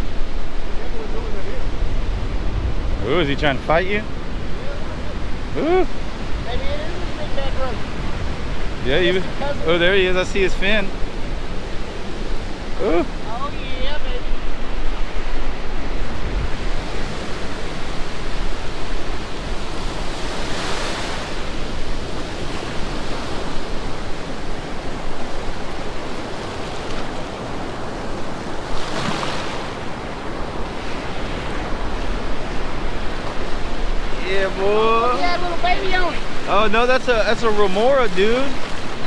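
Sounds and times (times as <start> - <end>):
surf washing on beach: 0.0 - 39.0
waves breaking: 0.0 - 39.0
wind on microphone: 0.0 - 39.0.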